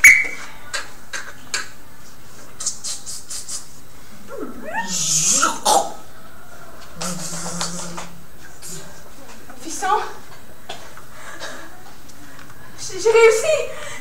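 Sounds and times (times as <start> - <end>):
soft vocal clicks and hisses: 2.4 - 3.8, 6.8 - 8.9
drawn-out sliding vocal cry: 4.2 - 8.2.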